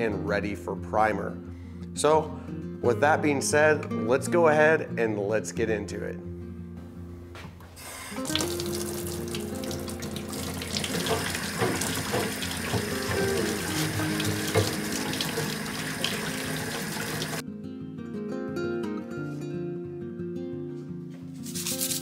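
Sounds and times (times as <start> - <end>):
guitar music: 0.0 - 22.0
tap water running into sink: 7.8 - 17.4
brush scrubbing bike frame: 10.8 - 14.7, 21.4 - 22.0.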